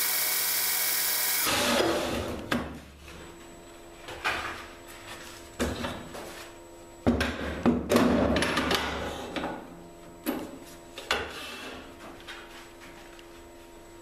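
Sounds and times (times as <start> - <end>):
belt grinder motor running: 0.0 - 1.8.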